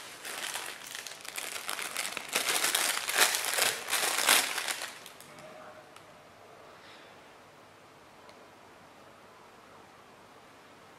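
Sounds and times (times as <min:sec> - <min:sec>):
plastic crinkling: 0:00.0 - 0:05.4.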